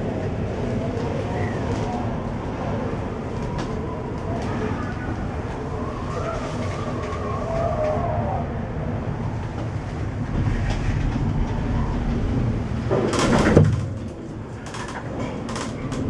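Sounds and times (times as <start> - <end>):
cable car cabin rumble: 0.0 - 16.0
cable car grip rattling: 9.4 - 16.0.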